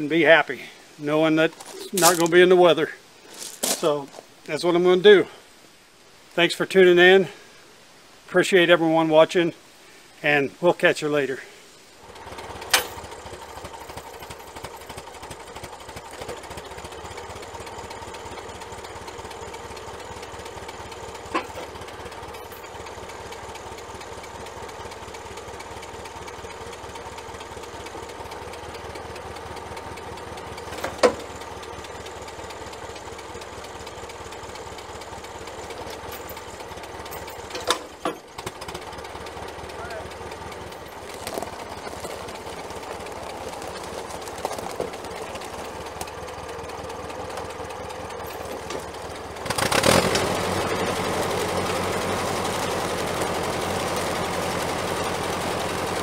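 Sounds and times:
tractor engine running: 1.1s - 4.6s, 11.9s - 56.0s.

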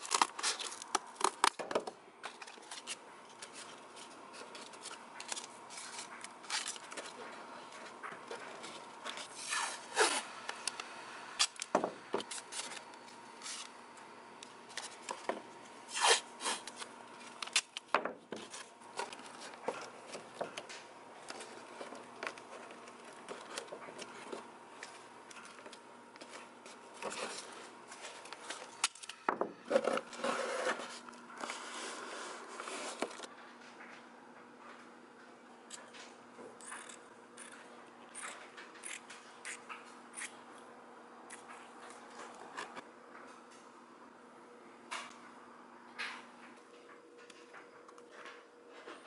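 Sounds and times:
masking tape ripping: 15.9s - 16.8s.

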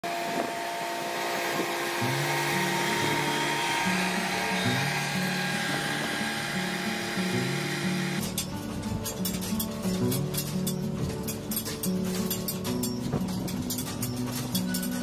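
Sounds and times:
repeating bass line: 2.0s - 8.2s.

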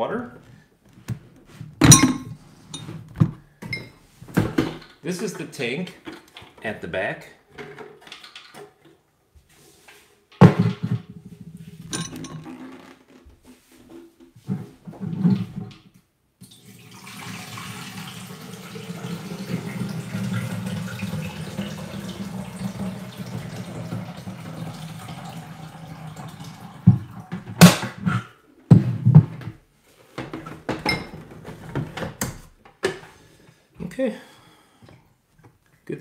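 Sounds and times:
knocks and clunks of handling: 0.4s - 5.0s, 5.9s - 6.7s, 7.5s - 9.0s, 10.3s - 16.0s, 26.9s - 33.2s
water pouring into plastic tank: 16.4s - 27.4s.

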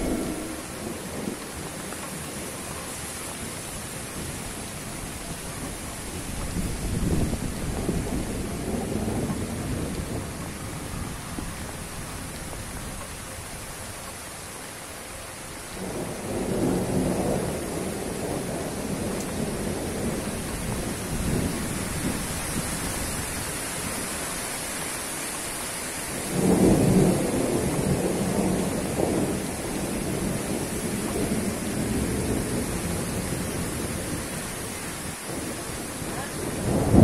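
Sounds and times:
wind rushing through palm fronds: 0.0s - 37.0s
wind buffeting microphone: 3.4s - 14.0s, 16.1s - 24.2s.

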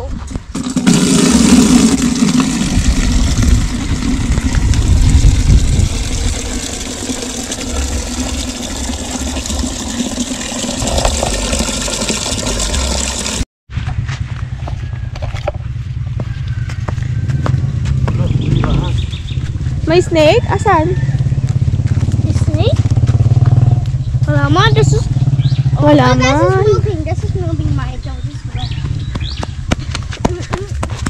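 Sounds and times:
tap water pouring into bucket: 0.6s - 13.4s.

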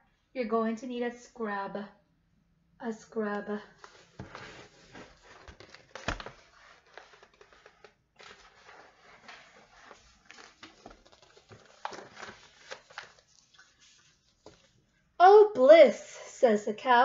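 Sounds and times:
paper rustling: 3.7s - 14.9s.

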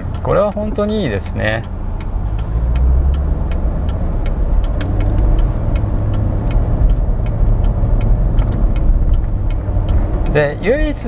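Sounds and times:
car engine and road rumble: 0.0s - 11.0s
light ticks: 0.0s - 11.0s.

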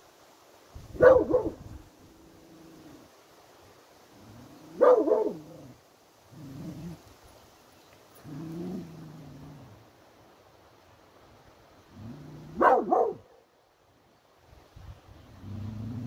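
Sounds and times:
dog barking: 1.0s - 1.6s, 4.8s - 5.4s, 12.6s - 13.4s.

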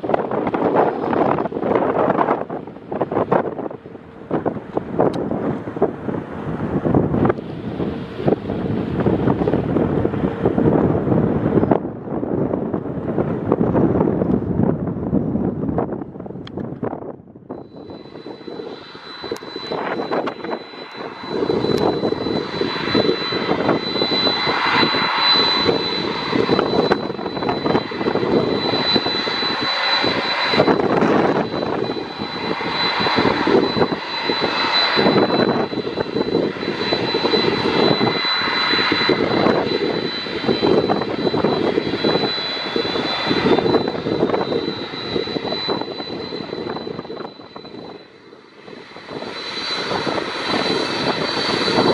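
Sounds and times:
jet engine rumble: 0.0s - 51.9s
jet engines whining: 0.0s - 51.9s
rising jet whine: 0.0s - 51.9s.

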